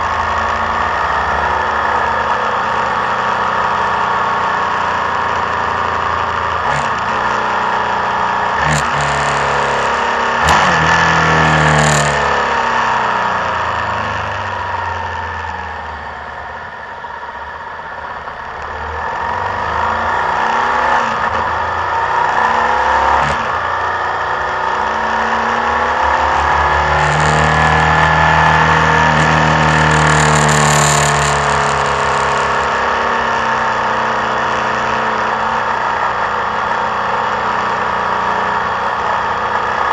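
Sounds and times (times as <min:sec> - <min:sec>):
motorcycle engine revving: 0:00.0 - 0:39.9
sharp clicks: 0:29.2 - 0:32.7.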